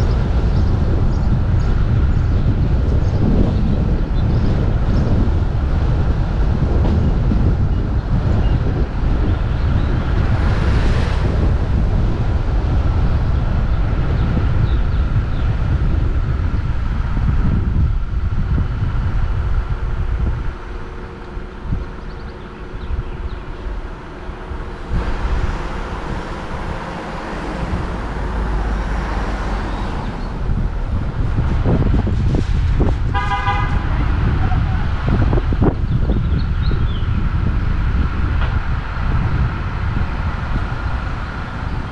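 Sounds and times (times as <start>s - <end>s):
wind buffeting microphone: 0.0s - 41.9s
car engine: 5.2s - 35.9s.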